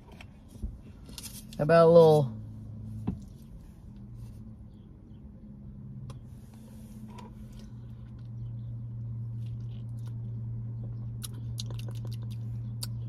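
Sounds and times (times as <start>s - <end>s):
person chewing food: 9.2s - 13.0s
wet mouth clicks: 11.2s - 13.0s.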